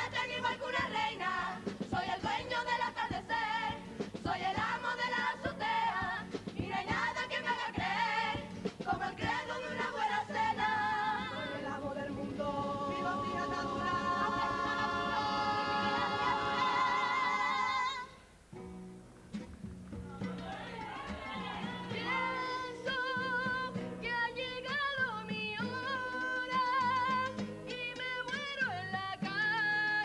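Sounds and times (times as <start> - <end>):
percussion: 0.0 - 17.1, 18.6 - 30.0
strummed guitars: 0.0 - 17.7, 18.5 - 30.0
choir singing in harmony: 0.0 - 18.2.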